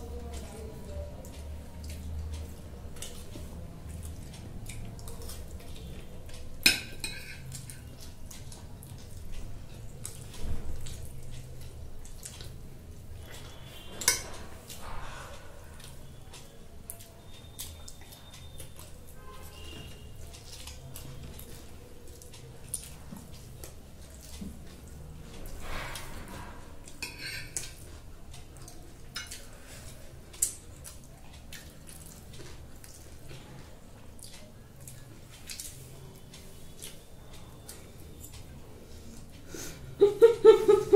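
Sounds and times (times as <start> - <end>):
cutlery clinking on glass plates: 6.6 - 7.8, 13.8 - 14.6, 27.0 - 27.8.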